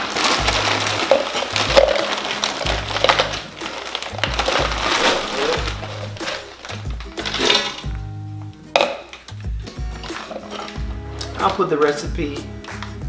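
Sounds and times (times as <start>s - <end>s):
frozen pieces rattling into cup: 0.0s - 8.0s, 10.0s - 12.0s
plastic bag crinkling: 0.0s - 8.0s, 8.8s - 12.1s
music with bass beat: 0.2s - 2.0s, 2.6s - 13.0s.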